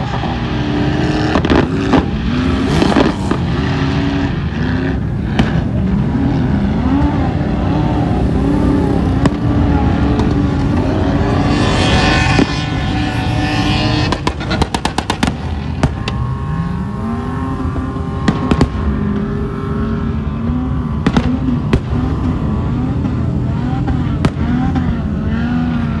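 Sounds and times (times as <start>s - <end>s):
vehicle engines revving: 0.0s - 26.0s
fireworks cracks and bangs: 1.2s - 3.6s, 9.2s - 9.5s, 14.0s - 16.2s, 18.2s - 18.9s, 21.0s - 22.1s, 24.2s - 24.4s.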